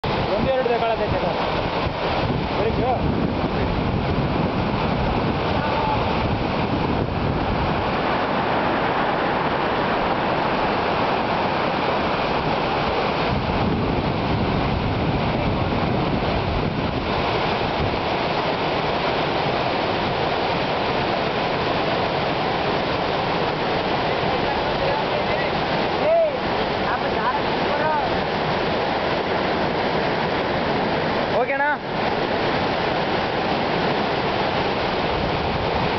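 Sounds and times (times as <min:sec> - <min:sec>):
river rapids rushing over rocks: 0:00.0 - 0:35.9
wind buffeting microphone: 0:00.0 - 0:35.9.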